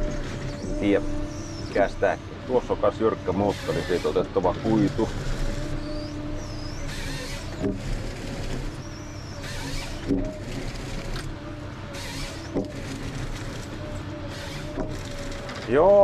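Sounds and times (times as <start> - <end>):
hydraulic hiss: 0.0 - 11.2, 11.9 - 15.6
engine hum: 0.0 - 16.0
sharp knocks: 9.4 - 11.3.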